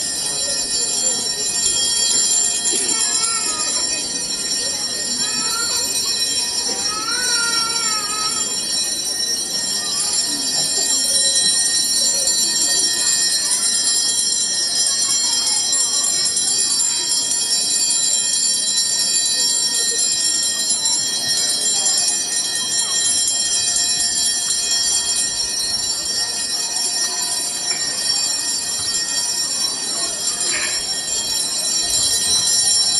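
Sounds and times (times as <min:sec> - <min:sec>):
faint voices: 0:00.0 - 0:32.9
small hand bells jingling: 0:00.0 - 0:32.9.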